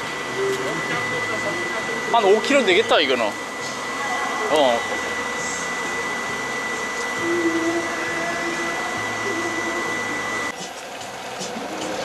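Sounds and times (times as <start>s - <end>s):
boat engine running: 0.0s - 12.0s
low humming tone: 0.0s - 12.0s
thin high whine: 0.0s - 12.0s.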